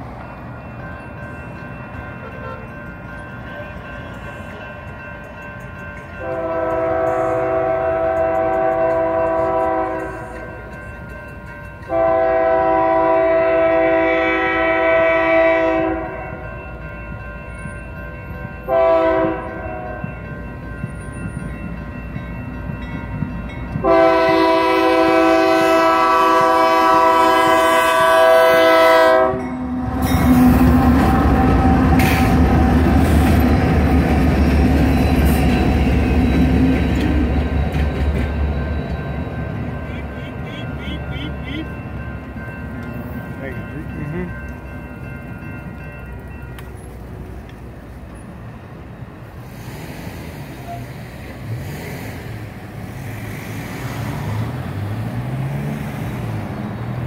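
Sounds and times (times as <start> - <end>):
crossing warning bell ringing: 0.0 - 49.4
locomotive engines and wheels rumbling: 0.0 - 57.0
locomotive air horn blasts: 2.2 - 2.8, 6.2 - 10.3, 11.9 - 16.3, 18.7 - 19.9, 23.8 - 32.4, 39.8 - 41.7.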